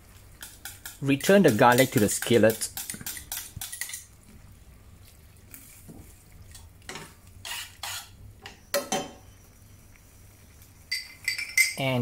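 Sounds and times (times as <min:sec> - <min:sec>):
tongs scraping in a skillet: 0:00.3 - 0:04.2, 0:05.0 - 0:08.7, 0:10.5 - 0:11.9
tongs clinking against pan: 0:00.4 - 0:04.1, 0:10.9 - 0:11.9.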